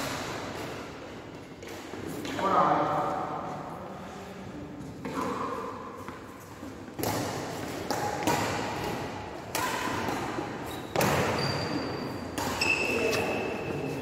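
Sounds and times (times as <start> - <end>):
rackets hitting shuttlecock: 6.8 - 13.4
short high squeaks: 10.7 - 14.0.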